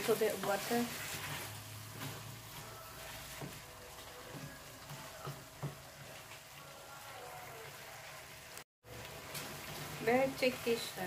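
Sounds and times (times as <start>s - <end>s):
stew sizzling faintly in a pan: 0.0s - 11.0s
wooden spoon stirring: 0.0s - 11.0s
spoon knocking on pan: 4.2s - 6.2s.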